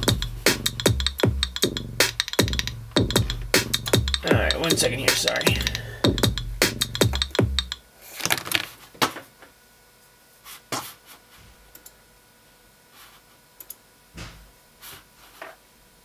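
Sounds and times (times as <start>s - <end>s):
drum machine beat: 0.0s - 7.8s.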